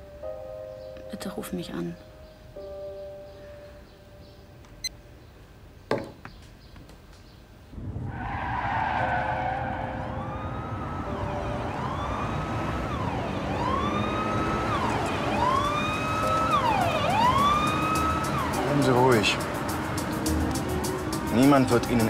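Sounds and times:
police siren wailing: 8.0 - 19.4.

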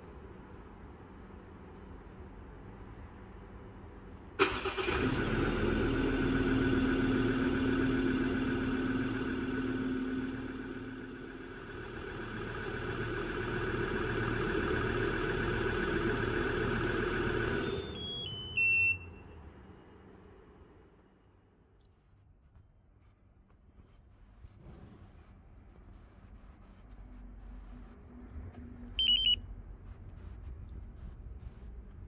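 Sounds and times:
pickup engine starting and idling: 4.4 - 18.6
descending electronic beeps: 28.9 - 30.0.

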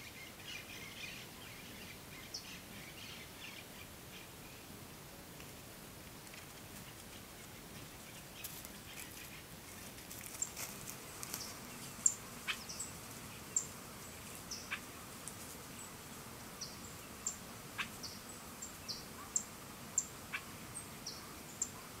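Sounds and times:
faint steady background hiss: 0.0 - 22.0
small birds chirping: 6.6 - 15.0, 15.7 - 22.0.

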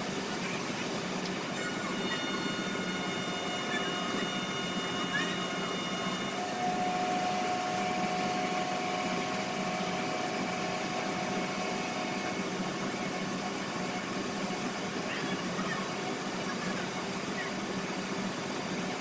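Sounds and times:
machinery humming: 0.0 - 19.0
faint high whine: 1.5 - 14.1.

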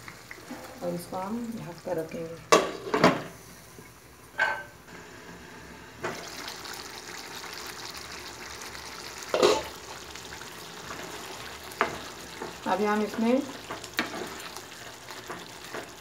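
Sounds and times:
chicken sizzling in a pan: 4.9 - 16.0.

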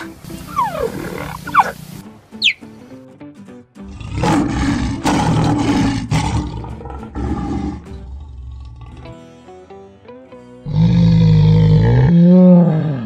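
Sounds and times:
background music: 0.0 - 13.0
lion roaring: 0.6 - 1.8, 3.8 - 9.1, 10.6 - 13.0.

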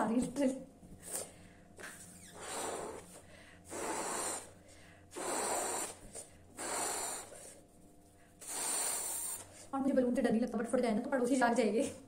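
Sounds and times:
woman blowing up balloon: 2.2 - 7.7, 8.4 - 9.7.

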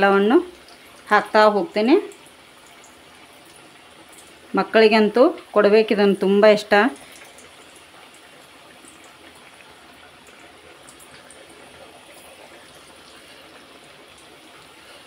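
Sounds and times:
hot oil sizzling in a pan: 0.0 - 15.0.

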